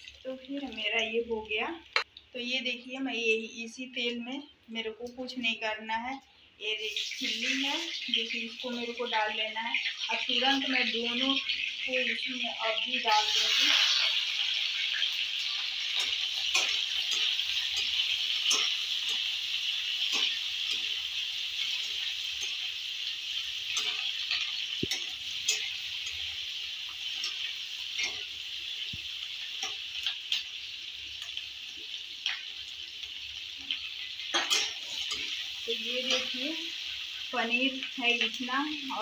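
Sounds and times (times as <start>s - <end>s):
vegetables sizzling in oil: 0.0s - 3.4s, 6.6s - 39.0s
spatula scraping pan: 13.2s - 22.7s.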